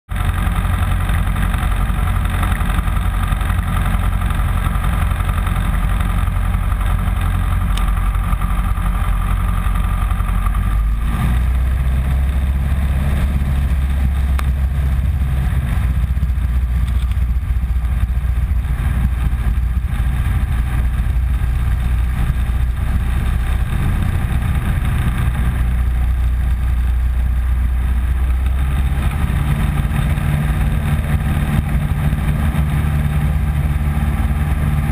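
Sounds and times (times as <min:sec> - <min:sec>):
small plane engine and propeller: 0:00.1 - 0:34.9.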